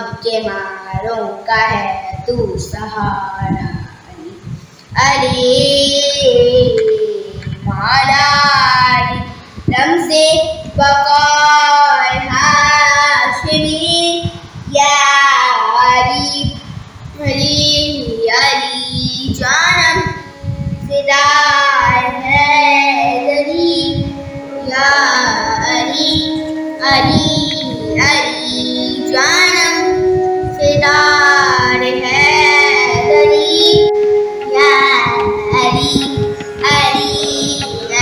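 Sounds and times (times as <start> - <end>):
girl singing devotional song: 0.0 - 38.0
held background tone: 19.5 - 38.0.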